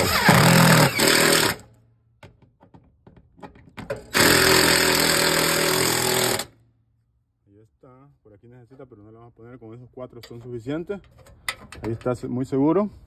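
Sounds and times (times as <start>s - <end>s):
cordless impact driver running: 0.0s - 1.6s, 4.1s - 6.5s.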